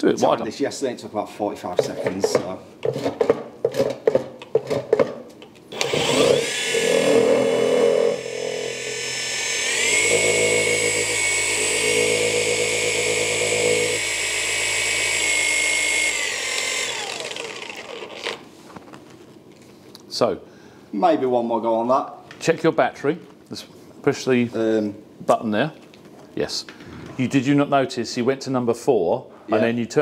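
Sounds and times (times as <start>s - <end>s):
polisher motor whine: 5.8s - 18.4s.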